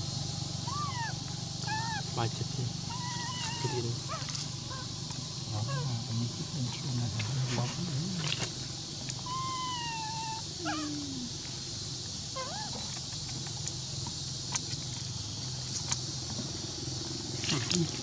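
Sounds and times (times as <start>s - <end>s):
macaque calls: 0.6s - 6.4s, 9.2s - 11.4s, 12.4s - 12.9s
steady high hiss: 3.6s - 14.5s.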